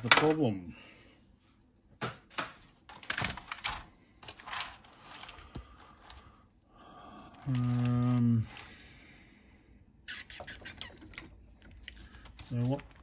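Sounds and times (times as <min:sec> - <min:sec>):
plastic case and keyboard clicks: 0:02.3 - 0:05.3.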